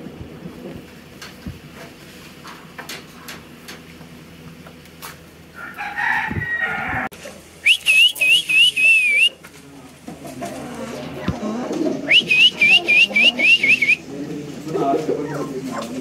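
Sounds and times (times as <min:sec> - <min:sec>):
rooster crowing: 0:05.5 - 0:07.1.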